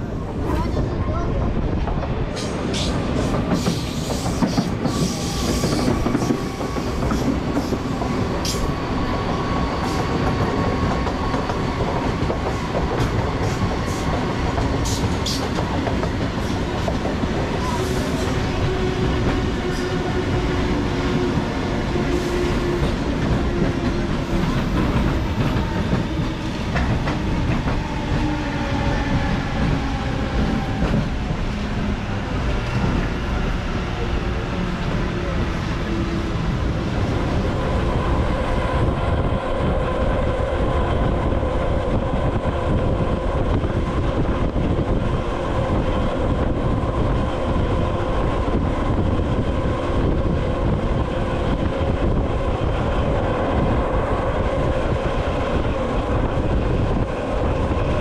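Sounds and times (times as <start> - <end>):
train passing close: 0.0 - 58.0
train wheels rumbling: 0.0 - 58.0.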